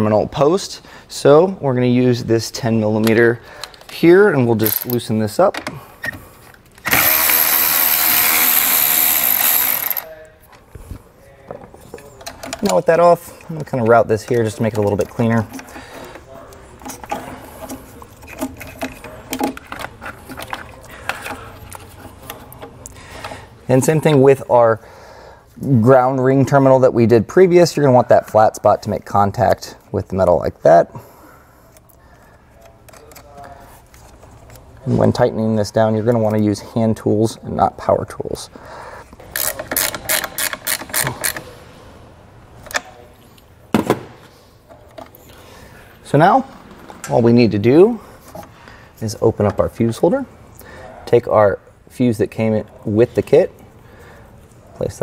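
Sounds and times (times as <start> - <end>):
hand ratchet clicking: 4.6 - 5.0, 6.8 - 10.1, 39.2 - 41.4
wiring and plastic parts clicking: 11.9 - 24.2, 31.7 - 34.7, 39.1 - 41.4.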